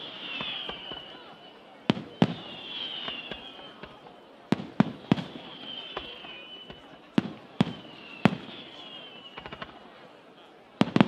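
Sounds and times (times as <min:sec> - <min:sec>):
falling firework whistle: 0:00.0 - 0:10.0
firework bangs: 0:00.0 - 0:10.0, 0:10.8 - 0:11.0.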